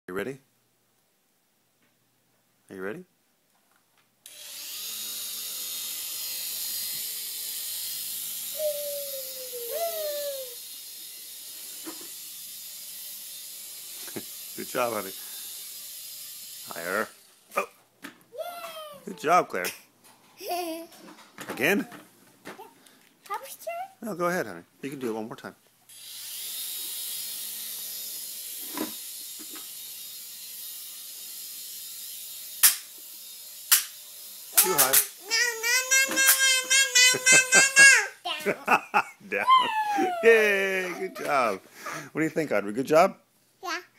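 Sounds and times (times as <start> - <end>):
toy helicopter motors whirring: 4.2 - 17.5, 25.9 - 42.0.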